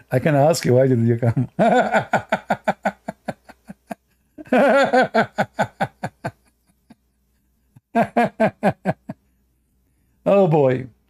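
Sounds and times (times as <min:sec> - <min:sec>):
man laughing: 0:01.2 - 0:07.1, 0:07.8 - 0:09.2.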